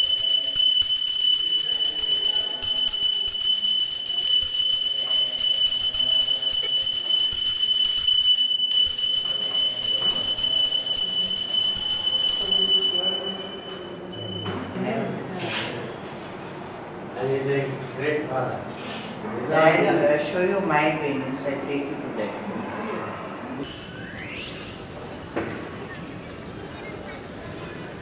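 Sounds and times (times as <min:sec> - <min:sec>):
small hand bell ringing rapidly: 0:00.0 - 0:14.5.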